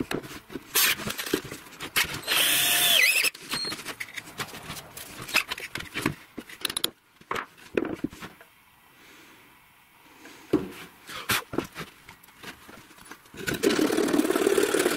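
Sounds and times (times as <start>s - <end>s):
cordless drill boring: 2.2s - 3.7s
clicks and knocks of handling: 3.4s - 8.5s.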